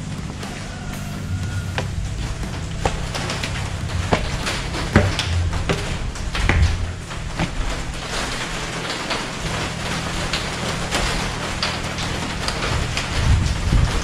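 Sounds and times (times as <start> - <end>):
footsteps on concrete and tile: 0.0 - 9.2
low steady drone: 0.0 - 14.0.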